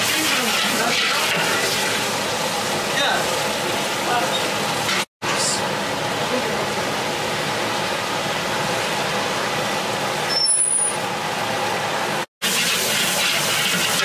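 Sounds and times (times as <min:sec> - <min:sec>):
gas burner roaring: 0:00.0 - 0:14.0
high squeak: 0:10.3 - 0:11.0.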